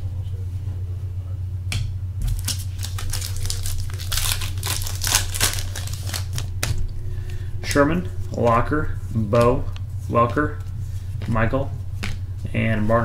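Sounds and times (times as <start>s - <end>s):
plastic wrapper crinkling: 2.2s - 6.8s.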